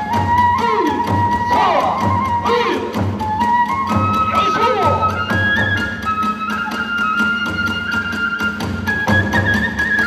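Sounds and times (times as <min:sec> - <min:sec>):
bamboo flute high note: 0:00.0 - 0:10.0.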